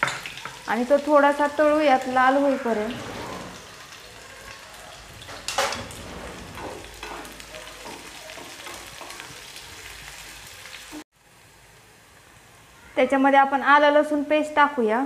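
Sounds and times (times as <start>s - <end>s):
onion sizzling in hot oil: 0.0s - 15.0s
spatula scraping a pan: 5.2s - 9.6s.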